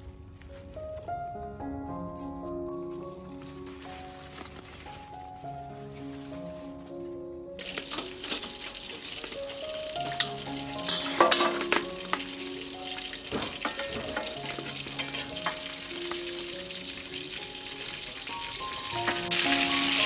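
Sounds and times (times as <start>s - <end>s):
fish sizzling in oil: 7.6s - 20.0s
metal ladle scraping a pan: 10.2s - 12.3s, 13.4s - 15.9s.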